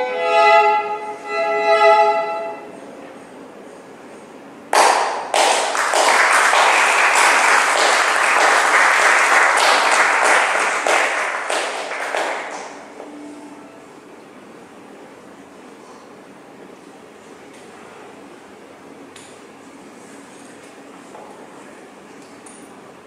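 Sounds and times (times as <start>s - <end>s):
violin note ringing: 0.0s - 2.8s
audience applause: 4.8s - 12.9s.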